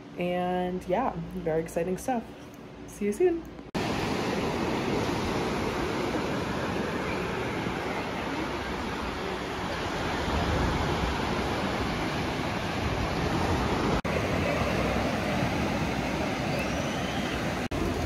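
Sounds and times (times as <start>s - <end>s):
ocean surf breaking on beach: 3.8s - 18.0s.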